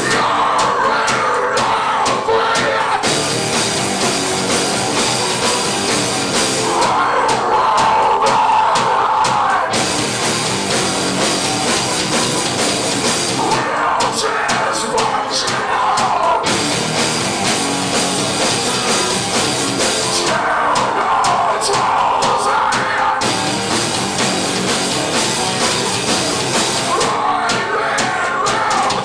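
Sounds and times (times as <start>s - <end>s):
person singing: 0.0s - 3.3s, 6.4s - 10.2s, 13.0s - 16.6s, 18.5s - 24.0s, 24.6s - 29.0s
distorted electric guitars: 0.0s - 29.0s
drum kit: 0.0s - 29.0s.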